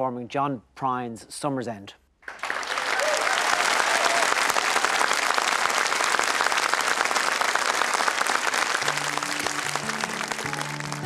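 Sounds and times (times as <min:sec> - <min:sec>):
audience applauding: 0:02.2 - 0:11.0
band playing sustained notes: 0:08.8 - 0:11.0.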